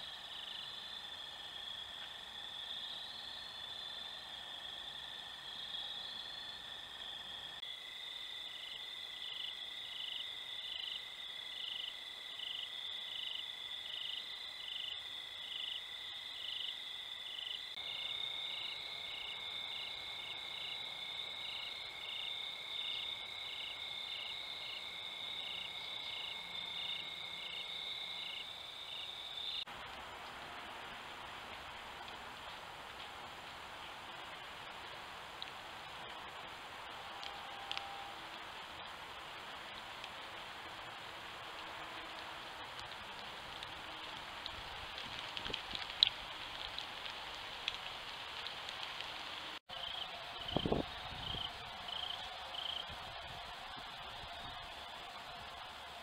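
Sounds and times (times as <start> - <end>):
crickets trilling and chirping: 0.0 - 29.7, 49.0 - 55.6
light rain hiss: 0.0 - 56.0.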